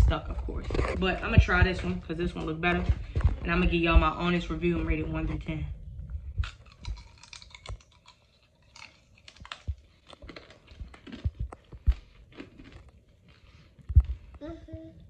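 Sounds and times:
crunching candy shell: 0:06.4 - 0:13.4.

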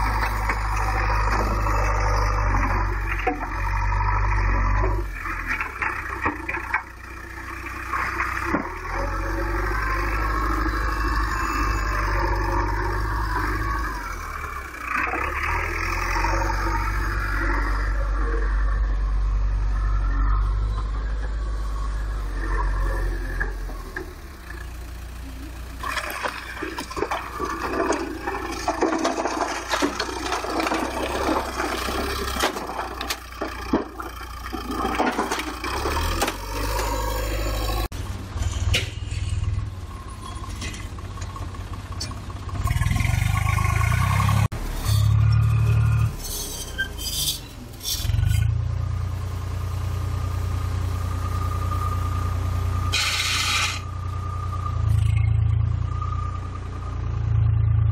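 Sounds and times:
heavy engine running: 0:00.0 - 0:57.9
rocks clattering into truck body: 0:25.8 - 0:36.9.

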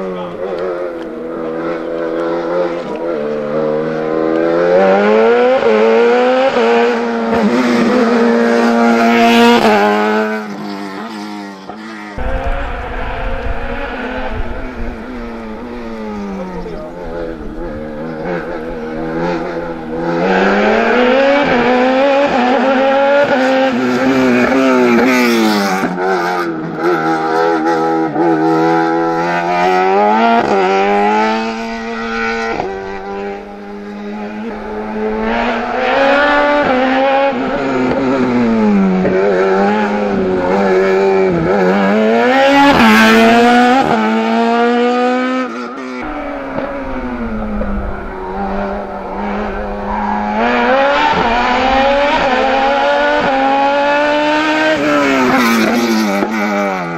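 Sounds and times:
race car engine revving: 0:00.0 - 0:56.9.

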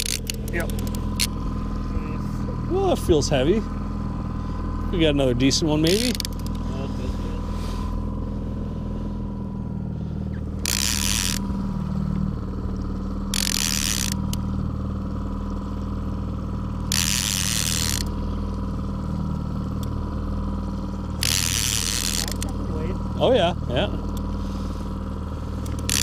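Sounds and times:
fishing reel rattling: 0:00.0 - 0:01.4, 0:05.5 - 0:06.7, 0:10.5 - 0:11.9, 0:12.8 - 0:14.6, 0:16.8 - 0:19.9, 0:21.0 - 0:22.8, 0:25.5 - 0:26.0
outboard motor drone: 0:00.0 - 0:26.0.

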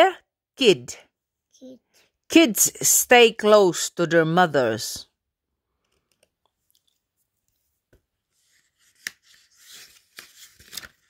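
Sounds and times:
book page rustling: 0:05.9 - 0:11.0.

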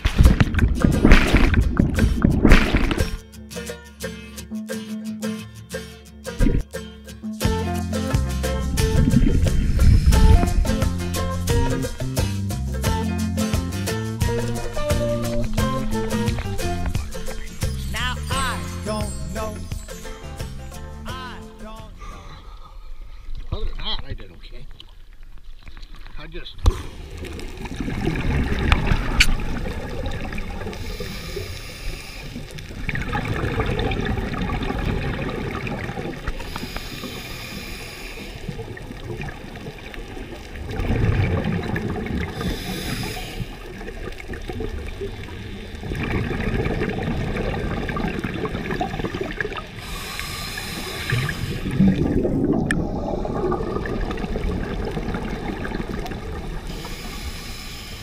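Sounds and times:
exhaled bubbles rushing: 0:00.0 - 0:03.2, 0:08.6 - 0:13.0, 0:14.2 - 0:18.8, 0:26.7 - 0:57.4
regulator hiss on inhale: 0:09.5 - 0:10.4, 0:30.6 - 0:32.8, 0:36.2 - 0:39.0, 0:42.3 - 0:44.3, 0:49.7 - 0:51.8, 0:56.6 - 0:58.0.

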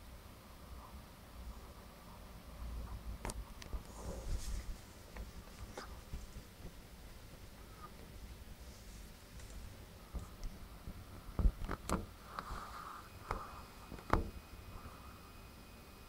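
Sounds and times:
faint steady hiss: 0:00.0 - 0:16.0
sharp clicks and knocks: 0:09.4 - 0:12.5, 0:13.2 - 0:14.4.

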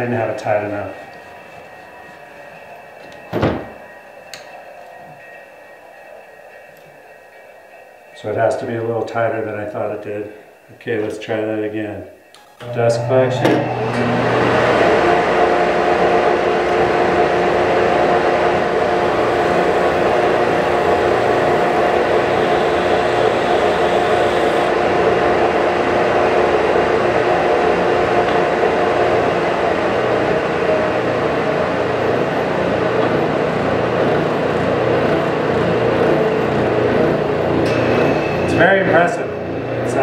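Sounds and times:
faint steady hum: 0:00.0 - 0:40.0
belt sander running: 0:12.6 - 0:40.0
shop vacuum running: 0:12.6 - 0:40.0.

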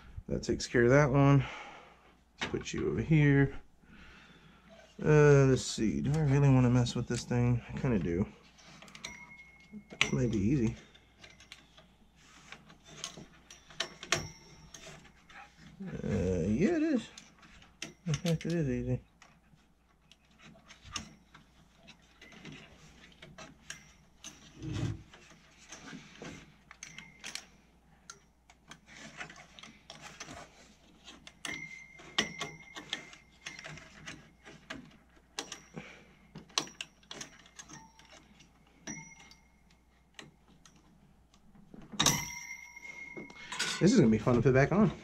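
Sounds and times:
hands handling computer parts: 0:05.8 - 0:45.0.

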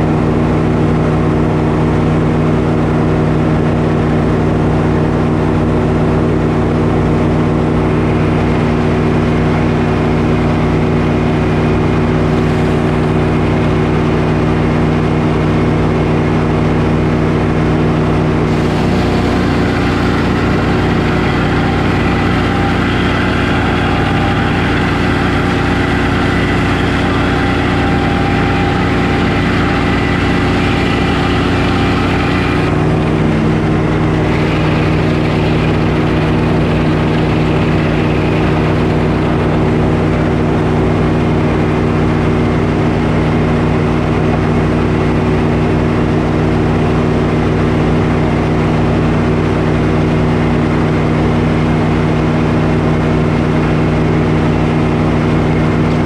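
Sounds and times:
circular sawmill running: 0:00.0 - 0:56.0
saw blade cutting log: 0:07.8 - 0:14.0, 0:18.0 - 0:40.7.

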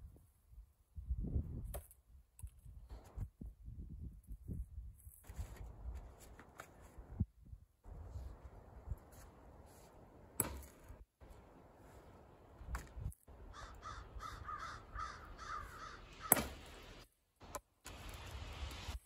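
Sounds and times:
axe splitting firewood: 0:10.4 - 0:11.0, 0:16.2 - 0:16.8
bird calling: 0:13.4 - 0:16.5.

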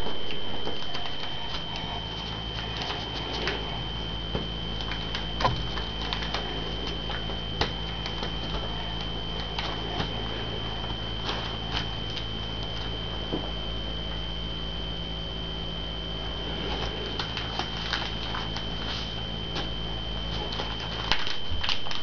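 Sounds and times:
high whine: 0:00.0 - 0:22.0
low electrical hum: 0:00.0 - 0:22.0
paper folding and creasing: 0:00.3 - 0:04.0, 0:04.8 - 0:10.4, 0:11.2 - 0:12.9, 0:16.5 - 0:22.0.

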